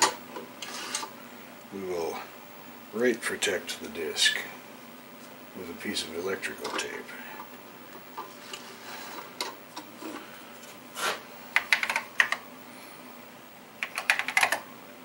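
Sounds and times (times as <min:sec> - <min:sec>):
rustling scrape: 0:00.6 - 0:01.1, 0:08.3 - 0:11.2
mechanical keyboard keystrokes: 0:11.6 - 0:12.4, 0:13.8 - 0:14.6.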